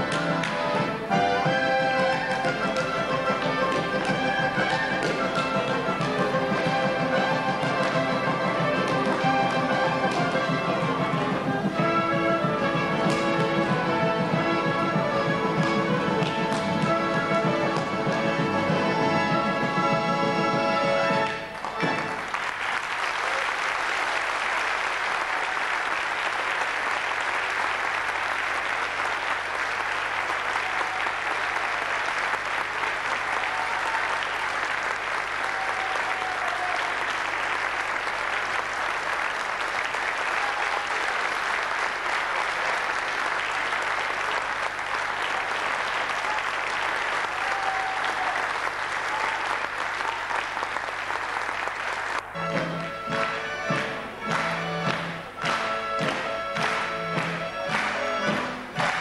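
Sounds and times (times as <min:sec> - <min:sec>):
music: 0:00.0 - 0:22.4, 0:52.2 - 0:59.0
audience applauding: 0:00.0 - 0:59.0.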